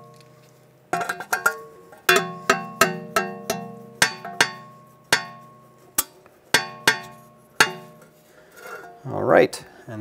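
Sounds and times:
low steady hum: 0.0 - 10.0.

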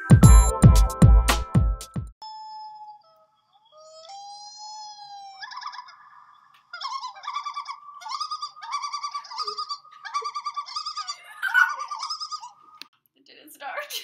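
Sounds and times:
cartoon tweeting birds effect: 2.2 - 12.6.

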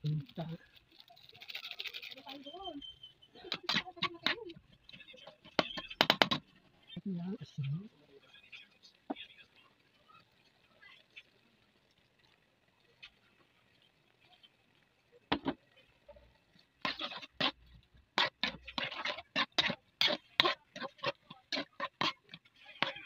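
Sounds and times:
utensil scraping metal pan: 3.4 - 4.4, 16.8 - 23.0.

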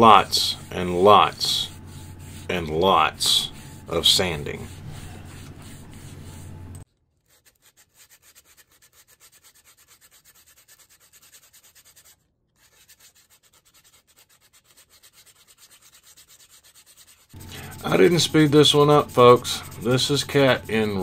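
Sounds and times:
low hum: 0.0 - 6.8, 17.4 - 21.0
sandpaper rubbing on wood: 0.0 - 21.0.

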